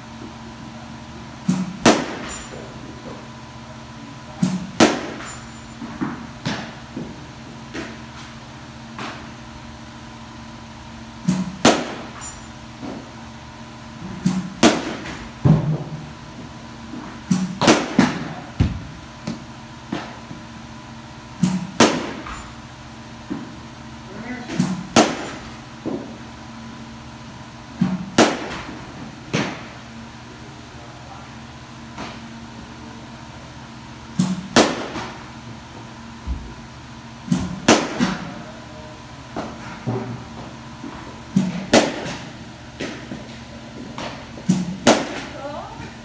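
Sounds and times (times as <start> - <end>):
bat cracking on ball: 1.5 - 2.5, 4.4 - 5.4, 11.3 - 12.2, 14.2 - 15.9, 17.3 - 20.3, 21.4 - 22.5, 24.5 - 26.1, 27.8 - 29.8, 34.2 - 35.2, 37.3 - 38.3, 41.4 - 45.3.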